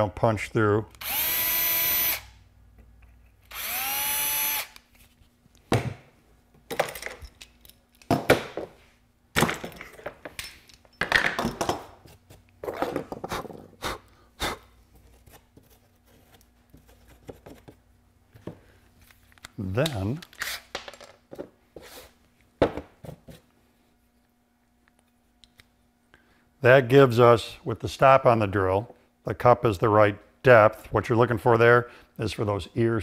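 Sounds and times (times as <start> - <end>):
cordless drill drilling: 1.0 - 2.3, 3.5 - 4.8.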